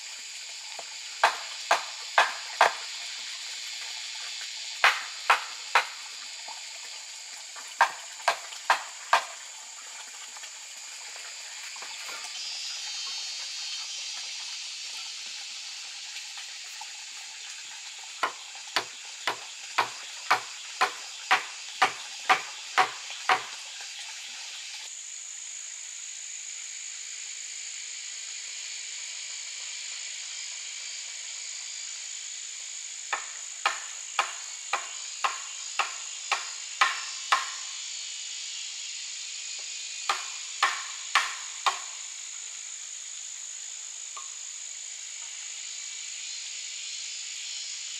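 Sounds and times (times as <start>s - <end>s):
shrill chorus of forest insects: 0.0s - 47.9s
timber being hammered: 1.2s - 2.8s, 4.8s - 6.0s, 18.2s - 23.5s, 33.1s - 37.6s, 40.1s - 41.9s.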